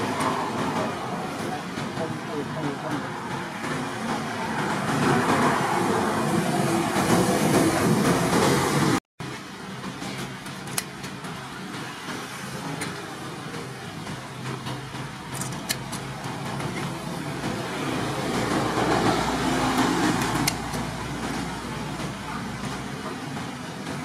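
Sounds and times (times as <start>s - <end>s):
steady rumble: 0.0s - 24.0s
tin snips cutting sheet metal: 15.3s - 16.1s, 20.1s - 20.8s.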